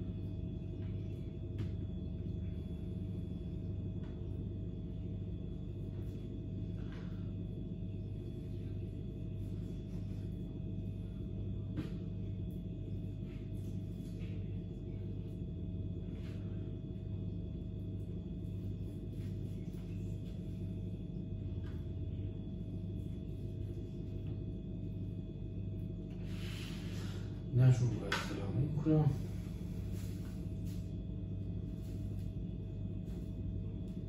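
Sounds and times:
low electrical hum: 0.0s - 34.0s.

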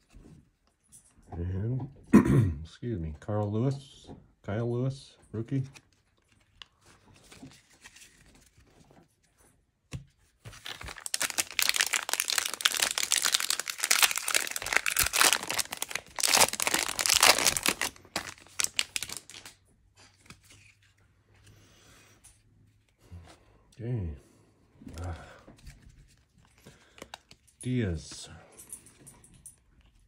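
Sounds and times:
wrapper tearing and crinkling: 10.5s - 19.6s.

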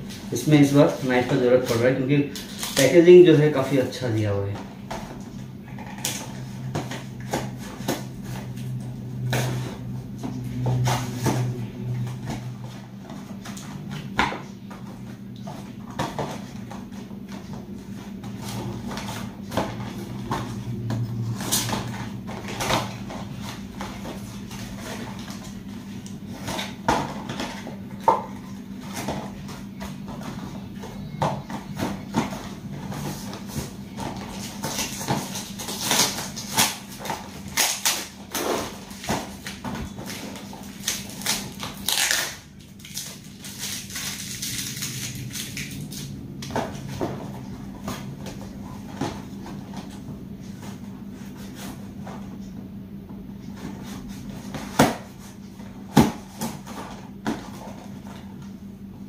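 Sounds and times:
steady low hum: 0.0s - 59.0s
cardboard crinkling and tearing: 33.1s - 46.0s.

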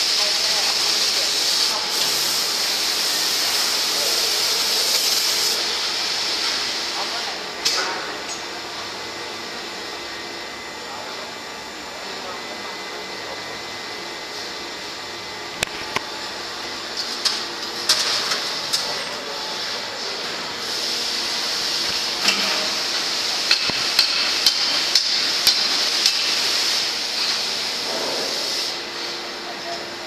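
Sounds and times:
stirring machine rushing hiss: 0.0s - 7.8s, 19.3s - 30.0s.

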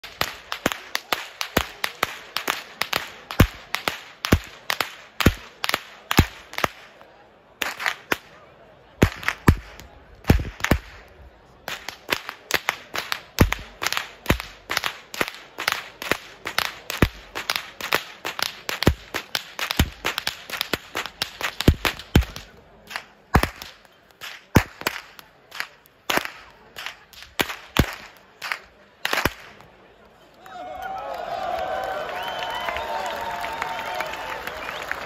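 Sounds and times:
whip cracking: 0.0s - 7.0s, 7.6s - 8.4s, 9.0s - 11.1s, 11.7s - 29.7s.

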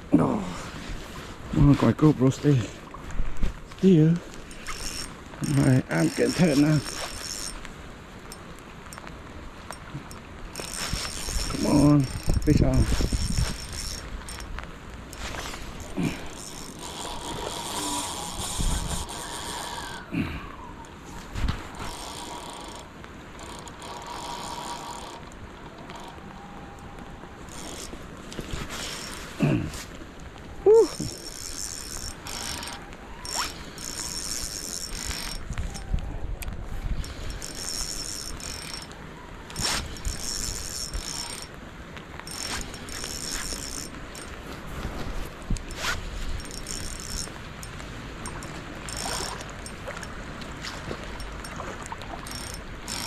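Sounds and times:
fishing reel clicking and whirring: 4.3s - 7.7s, 9.7s - 14.5s, 15.1s - 20.1s, 21.7s - 26.2s, 27.5s - 28.0s, 28.8s - 29.3s, 30.8s - 35.9s, 37.0s - 41.6s, 42.2s - 44.4s, 45.6s - 50.2s, 51.1s - 51.6s, 52.2s - 53.0s.

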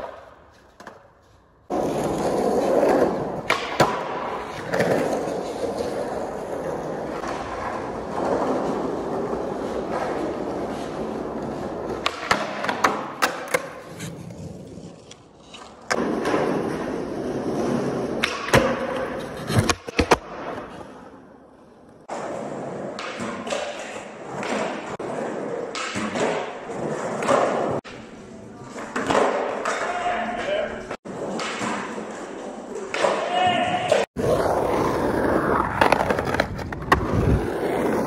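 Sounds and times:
skateboard wheels rolling on concrete: 0.0s - 38.0s
skateboard clacks and thuds: 1.7s - 10.6s, 11.3s - 13.8s, 35.4s - 38.0s.

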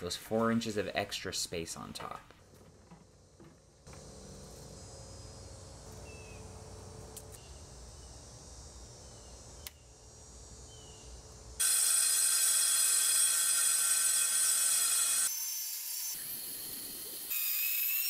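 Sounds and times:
circular saw cutting: 11.6s - 18.0s.

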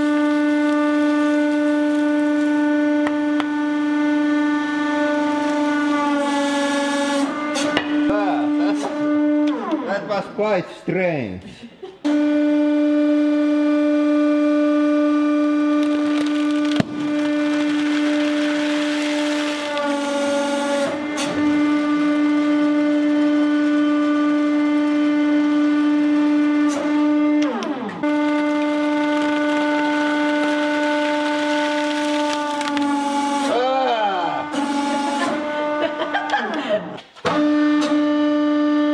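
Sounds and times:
hydraulic press humming drone: 0.0s - 10.3s, 12.0s - 38.9s
sealed bag cracking under press: 15.7s - 20.0s, 28.2s - 33.4s.

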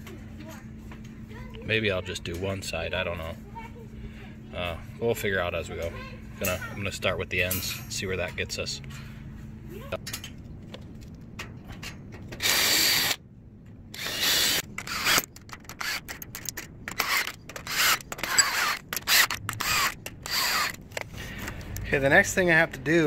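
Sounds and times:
cordless drill driving screws: 12.4s - 13.2s, 13.9s - 20.8s.

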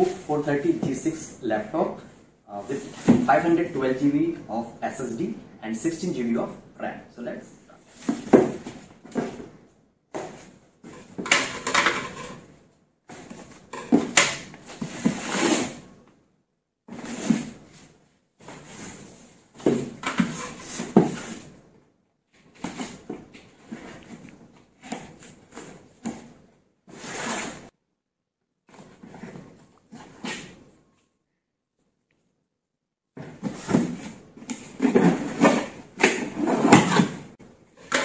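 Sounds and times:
cardboard box scraping: 14.6s - 15.8s, 26.9s - 27.7s.

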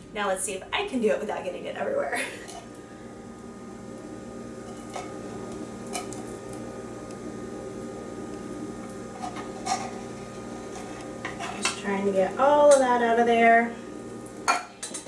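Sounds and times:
low hum: 0.0s - 14.7s
spatula scraping tin can: 9.1s - 11.8s.

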